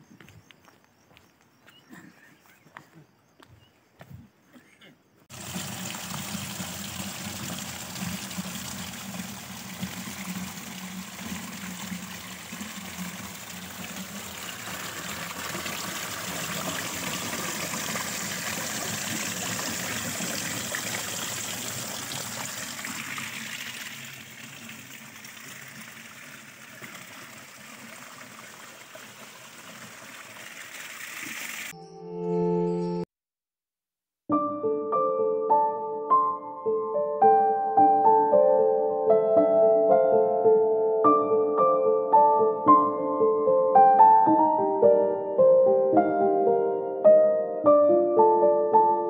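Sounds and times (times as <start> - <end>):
water cascading over rocks: 5.3 - 31.7
water pouring into a plastic can: 5.3 - 31.7.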